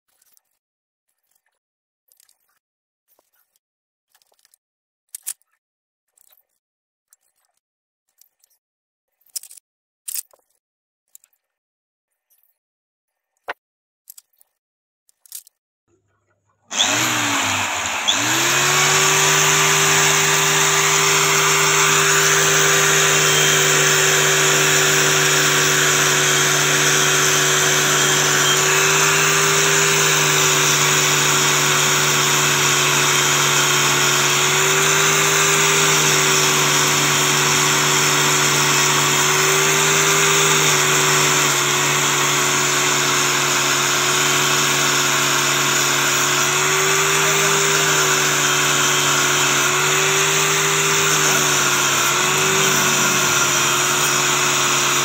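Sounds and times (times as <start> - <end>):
angle grinder wire brush scrubbing metal: 16.7 - 55.0.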